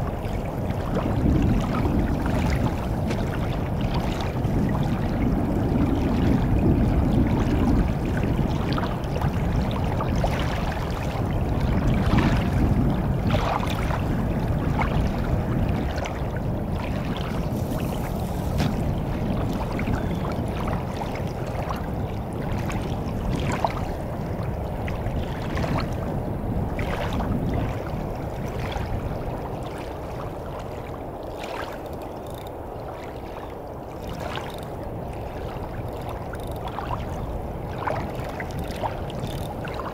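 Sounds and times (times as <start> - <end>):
water splashing around legs: 15.8 - 21.8.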